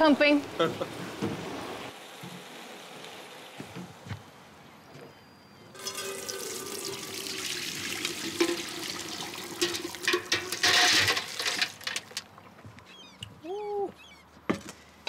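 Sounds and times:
liquid pouring and splashing: 5.8 - 12.5.

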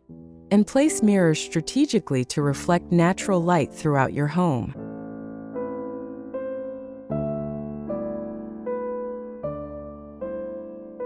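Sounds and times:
soft electric piano chords: 4.8 - 11.0.

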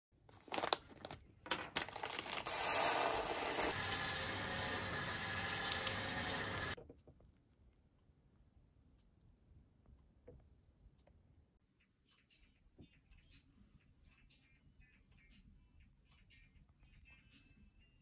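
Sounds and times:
coffee beans crackling in plastic bag: 0.3 - 6.8
coffee roaster running: 2.2 - 6.8.

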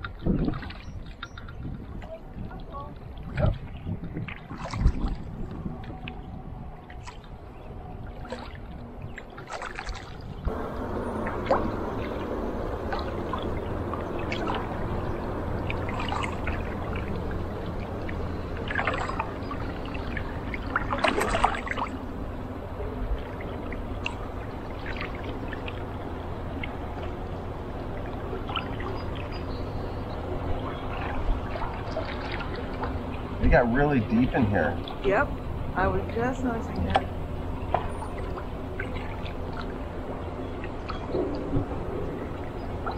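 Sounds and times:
paddle dipping into water: 0.0 - 7.4, 8.1 - 35.7, 36.7 - 42.9
water splashing and dribbling: 0.0 - 42.9.

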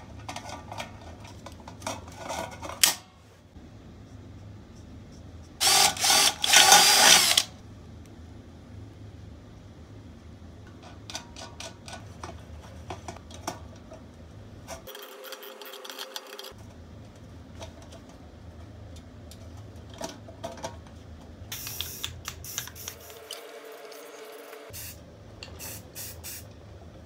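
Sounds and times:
metal parts clicking and tapping: 14.8 - 16.6.

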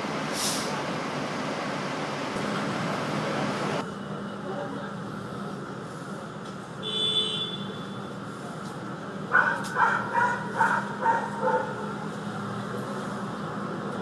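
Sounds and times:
vehicles idling hum: 0.0 - 14.0
dog barking: 9.3 - 11.8.

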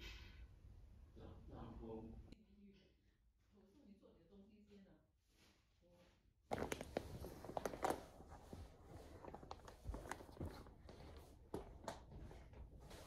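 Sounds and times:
rustling: 6.5 - 13.0.

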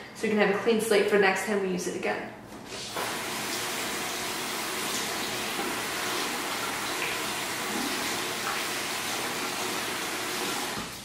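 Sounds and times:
faucet running: 2.8 - 11.0.

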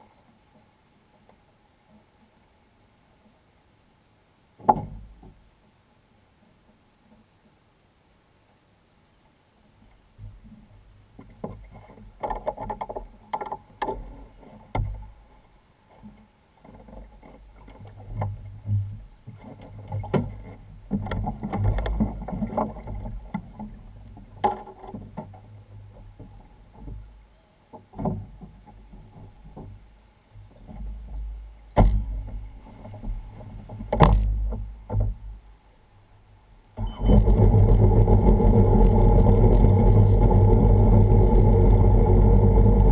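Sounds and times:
knocks and bumps on watercraft: 4.6 - 5.4, 10.2 - 15.1, 16.0 - 35.4, 36.8 - 42.9.

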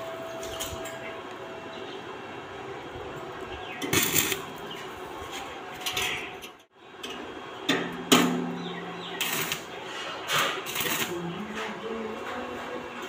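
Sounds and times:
welding arc crackling: 3.8 - 4.7, 9.1 - 11.6.

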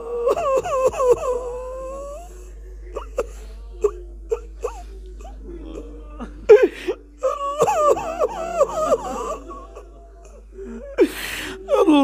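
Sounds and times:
person weeping aloud: 0.0 - 12.0.

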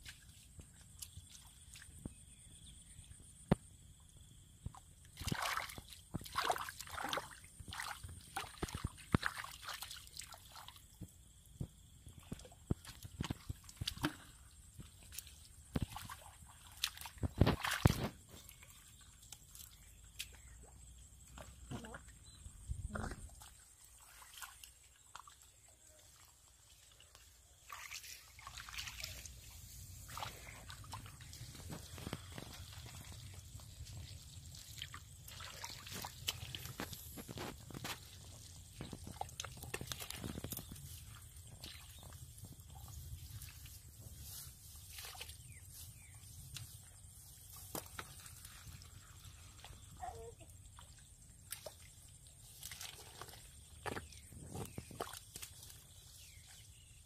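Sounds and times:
hands splashing in muddy water: 5.1 - 10.9, 12.2 - 20.6, 23.0 - 49.9, 50.8 - 56.6
squelching mud: 12.1 - 57.0.

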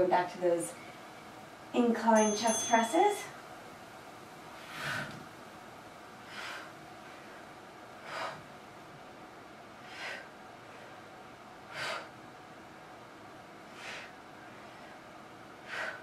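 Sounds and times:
woman breathing out hard: 15.6 - 16.0.

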